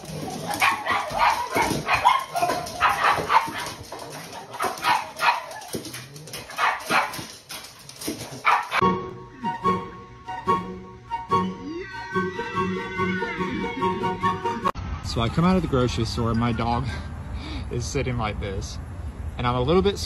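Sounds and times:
dogs barking and yipping: 0:00.0 - 0:08.8.

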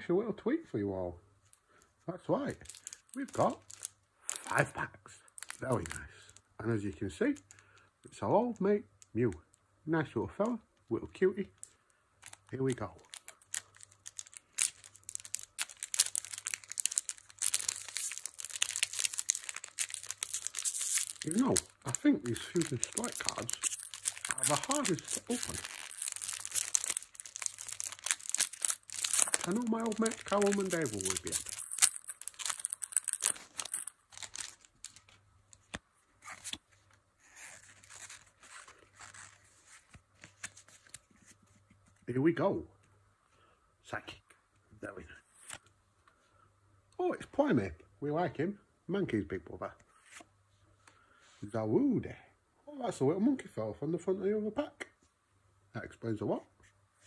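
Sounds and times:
foil pack crinkling and crackling: 0:02.4 - 0:04.7, 0:05.3 - 0:06.4, 0:11.4 - 0:35.8.

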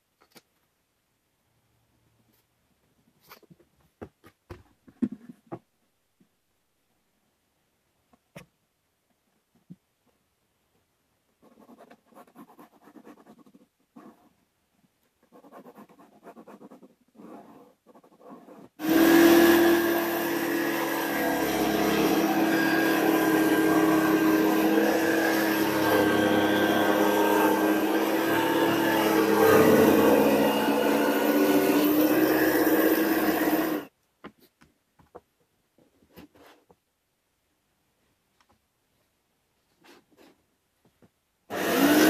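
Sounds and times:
pencil scratching on plywood: 0:11.4 - 0:14.4, 0:15.2 - 0:21.0
scroll saw cutting plywood: 0:18.8 - 0:33.9, 0:41.5 - 0:42.0.

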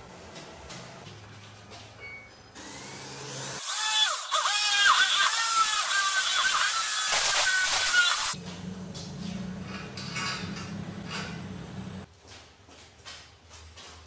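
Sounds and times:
drill boring into metal: 0:03.6 - 0:08.4.

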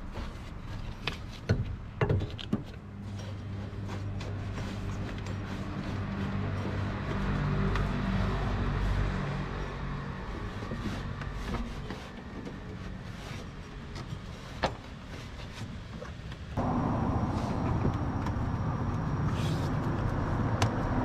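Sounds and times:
hands handling rubber hose: 0:00.0 - 0:08.0
steady low hum: 0:16.6 - 0:21.0.

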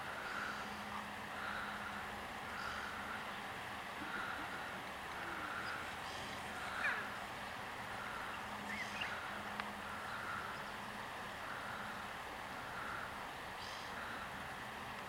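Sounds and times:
faint low hum: 0:00.0 - 0:15.0
steady hiss: 0:00.0 - 0:15.0
bird chirps: 0:08.2 - 0:09.3.

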